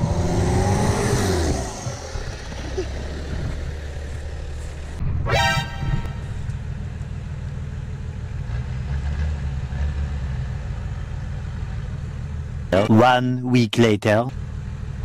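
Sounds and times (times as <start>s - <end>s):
rising pitched tone: 0.0s - 6.9s
engine rumbling at low revs: 0.0s - 15.0s.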